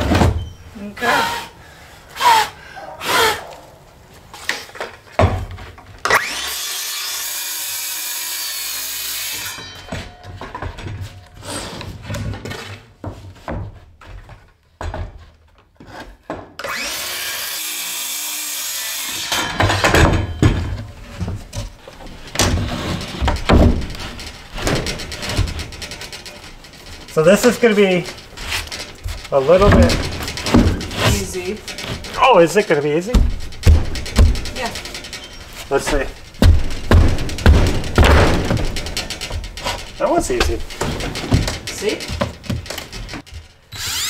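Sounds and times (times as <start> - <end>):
wood knocking and thumping: 4.8 - 5.9, 19.6 - 27.1, 28.0 - 43.6
circular saw cutting plywood: 6.1 - 9.8, 16.6 - 19.6, 43.7 - 44.0.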